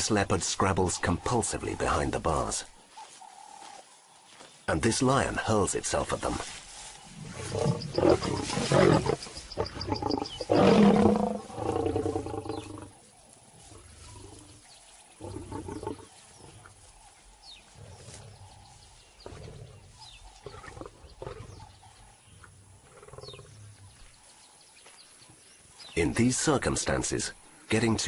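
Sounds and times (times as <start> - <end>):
lion roaring and growling: 7.2 - 13.0.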